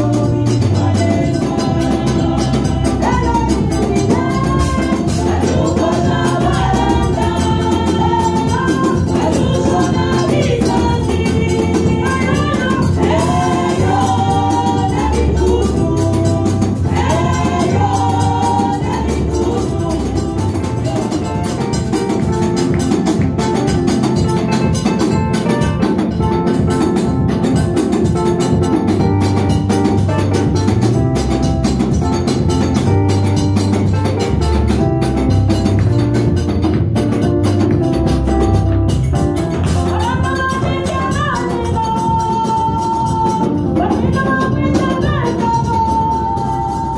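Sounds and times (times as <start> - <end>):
women singing through microphones: 0.0 - 21.6, 39.7 - 46.9
stepping bass line: 0.0 - 43.0
fast steady drum beat: 0.0 - 46.9.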